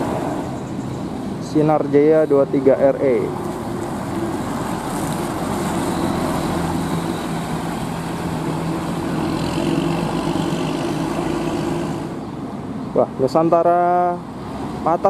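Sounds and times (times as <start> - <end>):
diesel bus engine hum: 0.0 - 15.0
tyre and road noise: 0.0 - 15.0.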